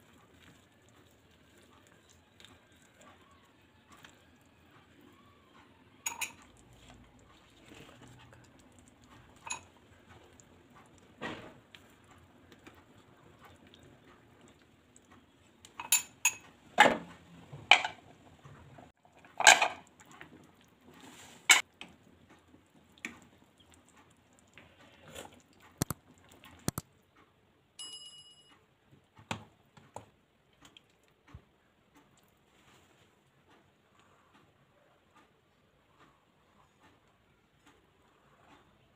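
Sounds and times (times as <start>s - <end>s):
high metallic ring: 27.8s - 28.6s.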